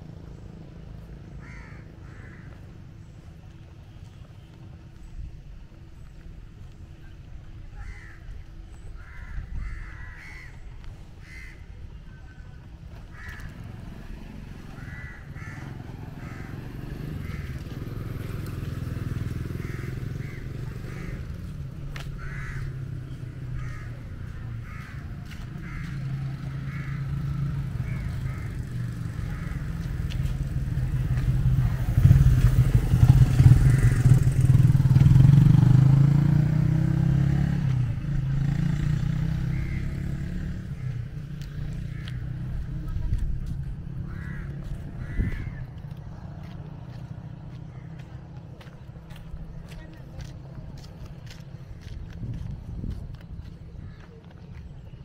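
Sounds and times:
vehicle engine running: 12.6s - 55.0s.

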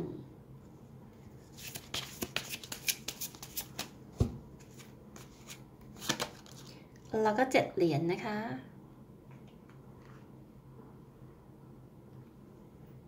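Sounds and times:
cards being shuffled: 1.5s - 4.0s, 4.6s - 6.8s.

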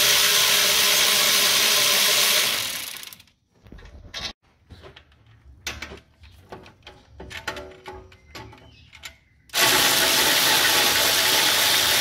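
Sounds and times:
electric ratchet running: 0.0s - 3.4s, 9.5s - 12.0s.

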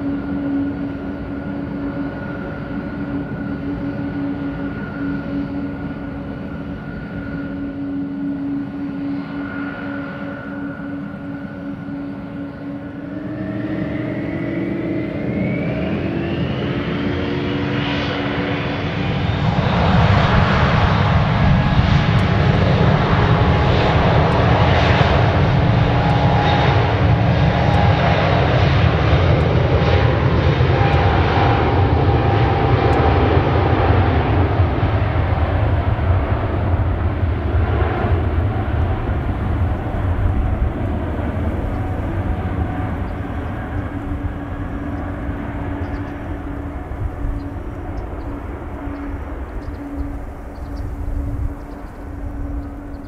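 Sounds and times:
jet engines whining and roaring: 0.0s - 53.0s.

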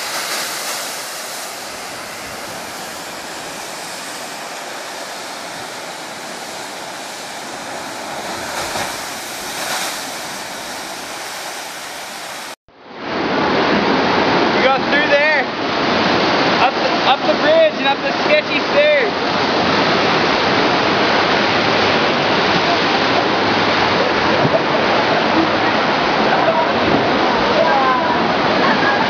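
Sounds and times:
ocean surf crashing on rocks: 0.0s - 29.0s
wash of waves: 0.0s - 29.0s.

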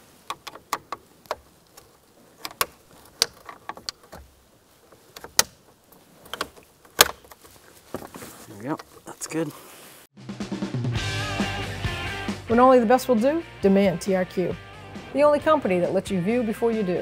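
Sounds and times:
plastic panel clicking and snapping: 0.3s - 4.3s, 5.1s - 5.6s, 6.2s - 7.4s.

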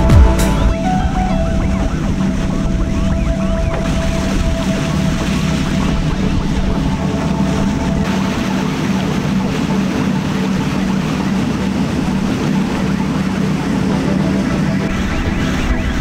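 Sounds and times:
boat engine hum: 0.0s - 16.0s
bow wave rushing along hull: 0.0s - 16.0s.

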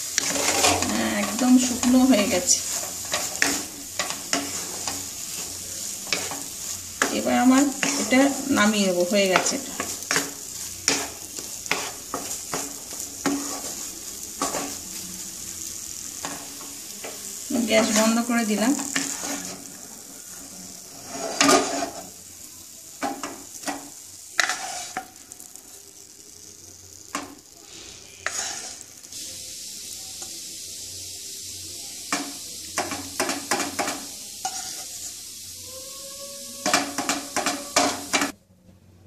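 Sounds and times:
wooden spatula scraping a pan: 0.0s - 15.0s, 16.2s - 22.2s, 23.0s - 25.6s, 27.1s - 29.2s, 32.8s - 35.1s, 36.6s - 38.4s
pan sizzling: 0.0s - 38.4s.

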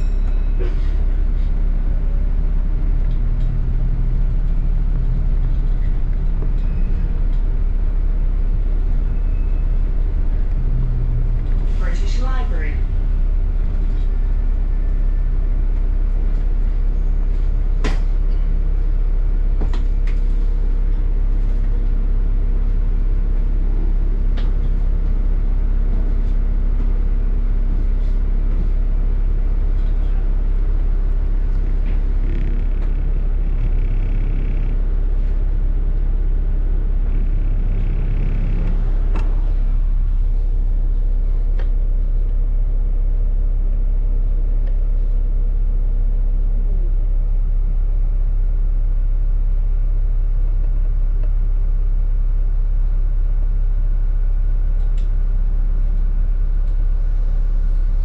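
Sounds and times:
bus engine rumble: 0.0s - 58.0s
constant hum: 0.0s - 58.0s
sharp clicks and rattles: 31.8s - 34.9s.

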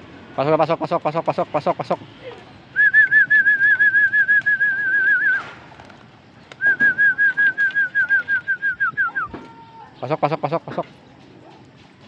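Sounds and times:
person whistling warbling call: 2.8s - 5.4s, 6.6s - 9.4s.

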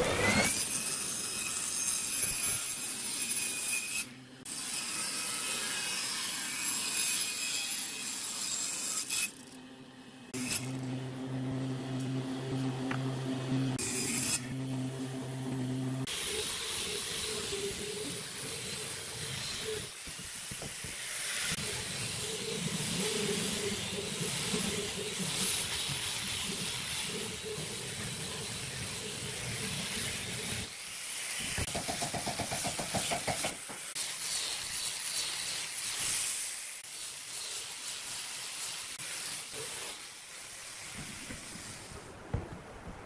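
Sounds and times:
machine hum: 10.4s - 19.8s
angle grinder sanding wood: 10.4s - 40.9s.

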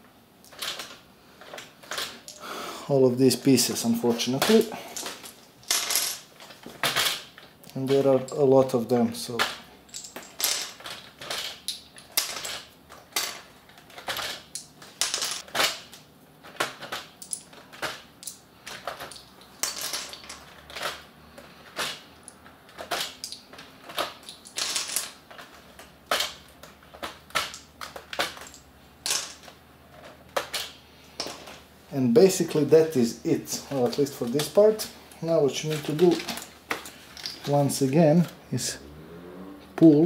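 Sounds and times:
plastic caps clicking and clattering: 9.3s - 31.6s.

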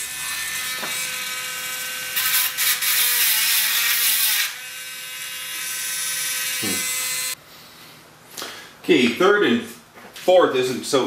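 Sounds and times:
electric engraving tool buzzing: 0.0s - 7.4s
engraver tip scratching metal: 0.2s - 4.7s.

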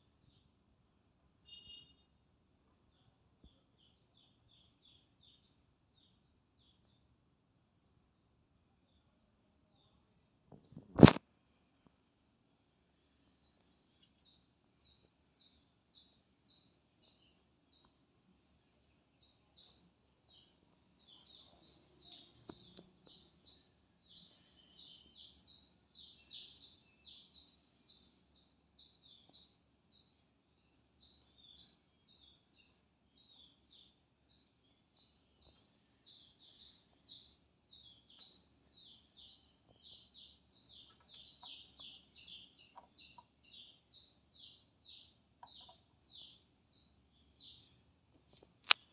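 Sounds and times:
chick peeping: 19.2s - 47.7s.

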